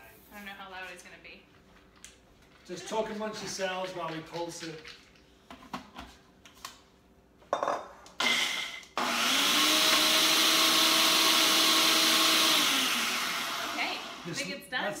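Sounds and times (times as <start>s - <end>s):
blender motor running: 8.2s - 14.6s.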